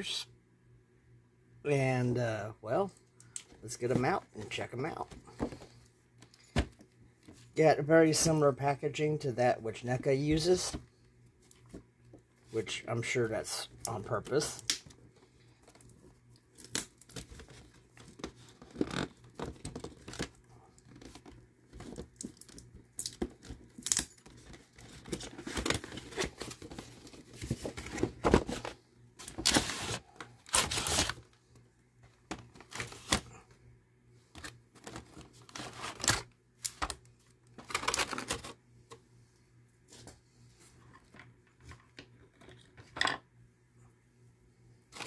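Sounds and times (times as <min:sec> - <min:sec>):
cardboard tearing and scraping: 0:27.4 - 0:31.2, 0:34.9 - 0:36.2.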